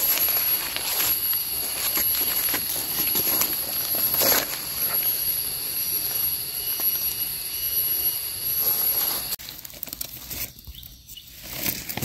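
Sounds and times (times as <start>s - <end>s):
high-pitched insect chorus: 0.0s - 9.6s
dry leaves rustling: 0.0s - 12.0s.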